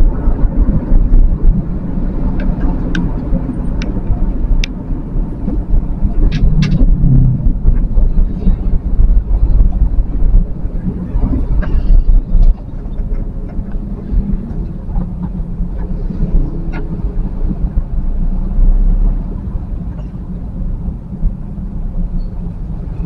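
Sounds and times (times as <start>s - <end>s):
traffic engines and road noise: 0.0s - 23.0s
sharp traffic sounds: 0.7s - 18.0s.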